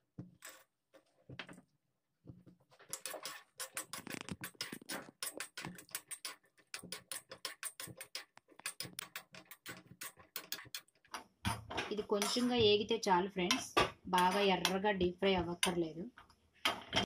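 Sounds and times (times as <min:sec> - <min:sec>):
spoon scraping and tapping iron pan: 0:02.8 - 0:12.8, 0:13.4 - 0:14.8, 0:15.6 - 0:15.8.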